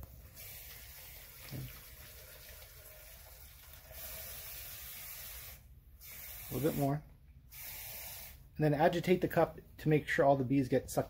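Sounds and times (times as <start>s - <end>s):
tap water filling plastic cup: 0.0s - 5.0s.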